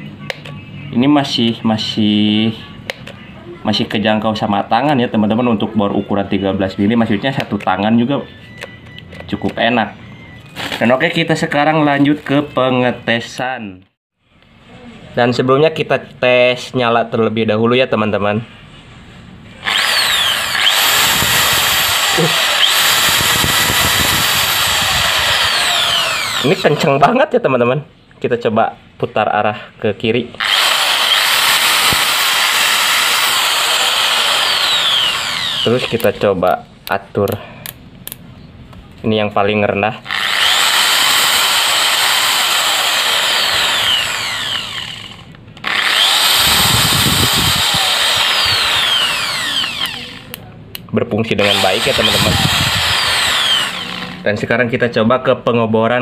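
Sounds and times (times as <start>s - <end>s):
electric drill running: 19.6s - 26.8s, 30.4s - 36.2s, 40.1s - 50.4s, 51.4s - 54.3s.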